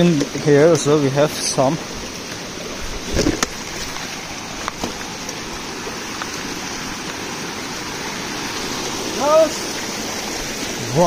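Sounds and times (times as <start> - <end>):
stream splashing over stones: 0.0 - 11.0.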